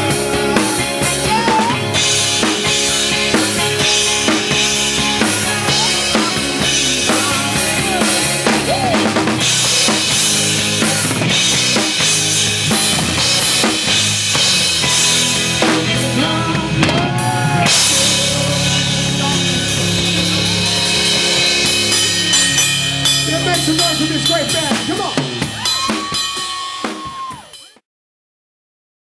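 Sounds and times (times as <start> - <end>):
person singing: 0.0 - 9.3, 14.9 - 22.2
live rock band playing: 0.0 - 27.8.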